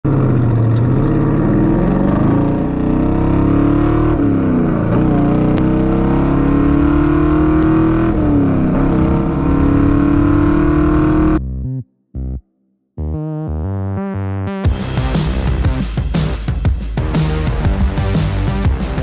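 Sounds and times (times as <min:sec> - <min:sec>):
car engine accelerating: 0:00.0 - 0:11.4.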